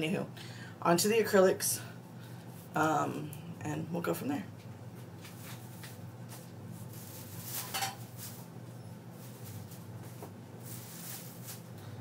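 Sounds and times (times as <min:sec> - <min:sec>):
steady low hum: 0:00.0 - 0:12.0
plastic bag rustling: 0:05.2 - 0:12.0.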